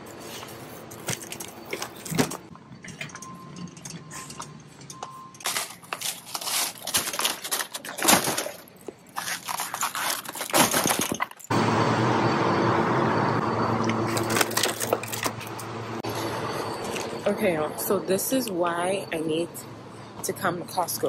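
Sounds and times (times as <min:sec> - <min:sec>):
bottle cases thudding in cart: 0:00.9 - 0:04.4, 0:05.4 - 0:11.5
plastic wrap crinkling: 0:05.4 - 0:11.0.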